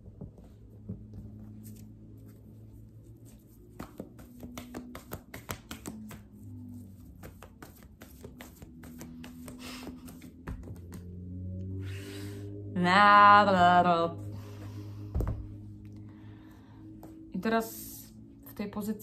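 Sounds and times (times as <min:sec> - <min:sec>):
soft background music: 0:00.0 - 0:19.0
cards being shuffled: 0:01.4 - 0:11.2.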